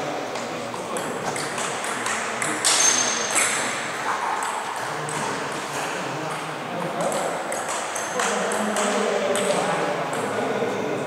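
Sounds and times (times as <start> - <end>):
table tennis balls clicking: 0.7 - 3.8, 6.3 - 10.3
sharp ringing click: 2.7 - 3.5.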